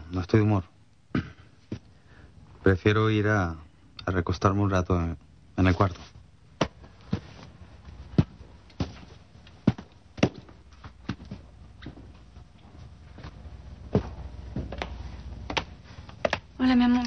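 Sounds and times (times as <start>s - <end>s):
footsteps on hard floor: 6.6s - 16.5s.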